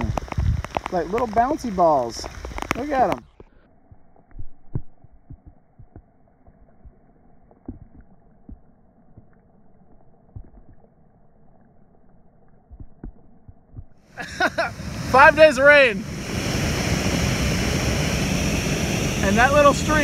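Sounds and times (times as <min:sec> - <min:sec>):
raindrops landing on water: 0:00.0 - 0:14.0
faint steady hum: 0:00.0 - 0:20.0
loud rushing water: 0:14.2 - 0:20.0.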